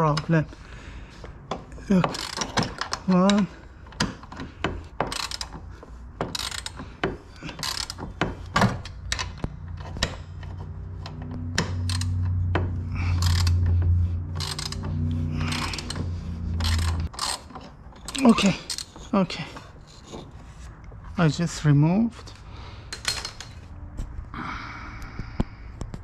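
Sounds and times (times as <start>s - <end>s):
ratchet wrench clicking: 2.0s - 5.6s, 6.2s - 6.8s, 7.5s - 18.9s
steady low hum: 3.0s - 23.0s.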